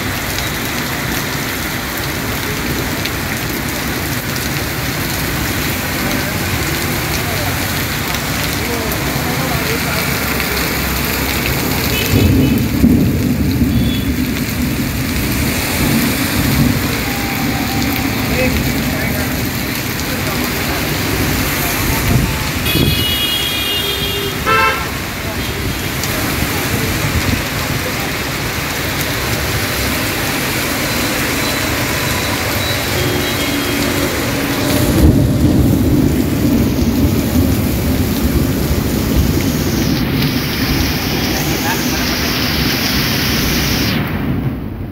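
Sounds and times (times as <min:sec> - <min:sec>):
heavy rain on street: 0:00.0 - 0:44.9
low rumble of thunder: 0:11.8 - 0:19.7, 0:34.7 - 0:39.6.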